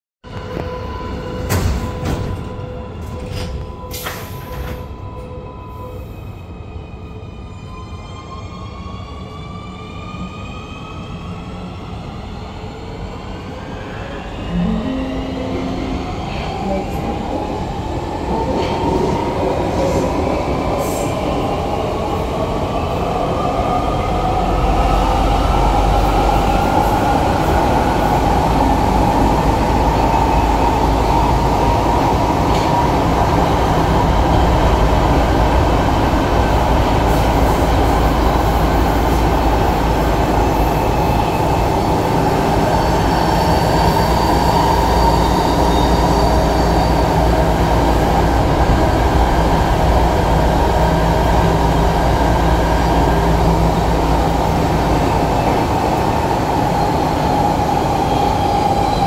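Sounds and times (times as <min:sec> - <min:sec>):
wheels rumbling on rail: 0:14.4 - 0:59.0.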